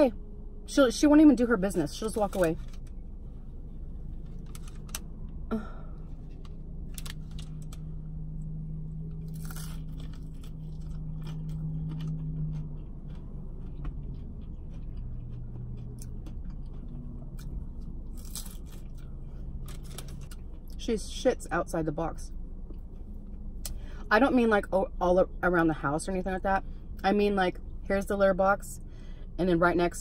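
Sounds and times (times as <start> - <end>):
low hum: 0.0 - 30.0
chewing and crunching food: 6.0 - 20.8.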